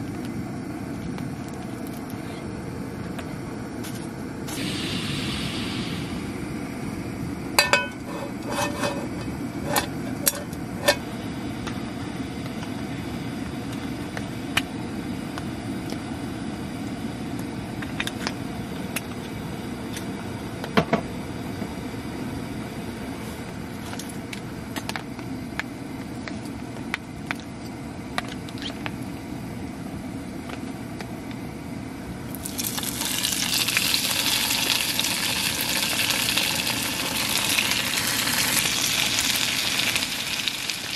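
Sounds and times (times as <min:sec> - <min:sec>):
frying pan clinking on stove: 0:07.6 - 0:08.0
meat sizzling in hot oil: 0:32.3 - 0:40.9.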